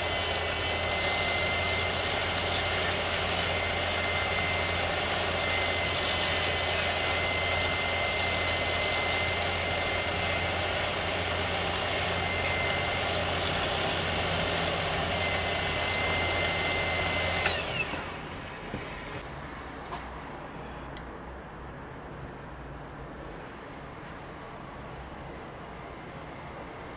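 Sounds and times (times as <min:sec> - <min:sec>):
wood lathe cutting with whine: 0:00.0 - 0:18.5.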